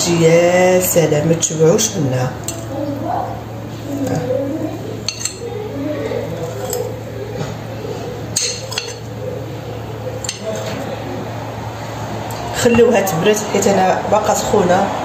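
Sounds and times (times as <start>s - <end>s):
steady low hum: 0.0s - 15.0s
fork clinking on plate: 2.4s - 2.7s, 5.0s - 5.5s, 6.2s - 7.0s, 8.3s - 9.2s, 10.2s - 10.8s.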